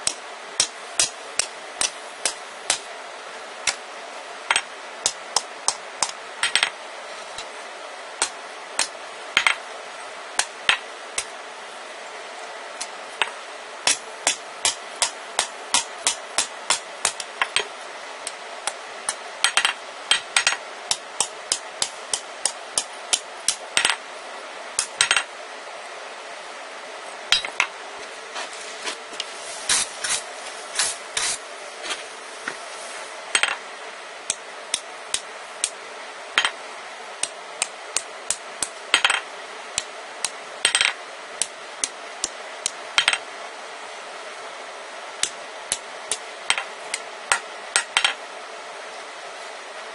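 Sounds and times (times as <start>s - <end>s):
hammer striking metal on anvil: 27.3s - 27.7s
steady hiss: 28.1s - 42.8s.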